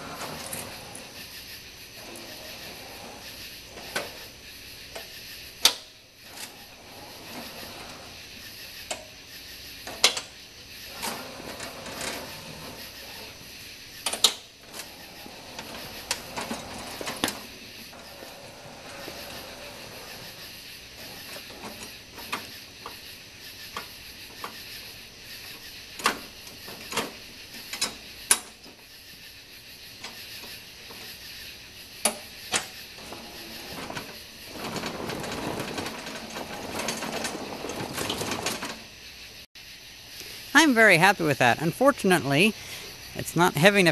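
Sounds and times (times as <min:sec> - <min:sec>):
electric tractor pushing dirt: 0:00.0 - 0:09.1, 0:10.8 - 0:13.5, 0:14.3 - 0:25.6, 0:31.9 - 0:38.9.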